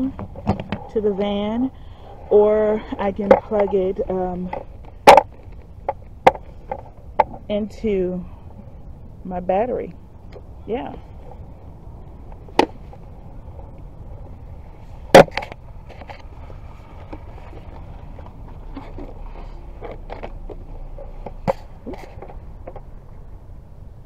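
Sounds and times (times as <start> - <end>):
steady low rumble: 0.0 - 24.0.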